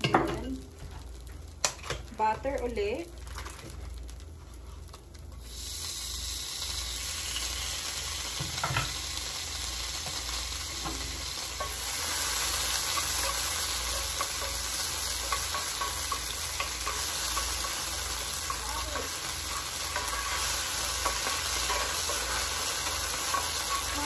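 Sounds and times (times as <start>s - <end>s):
butter sizzling in skillet: 0.0s - 24.0s
wooden spatula stirring: 11.0s - 24.0s.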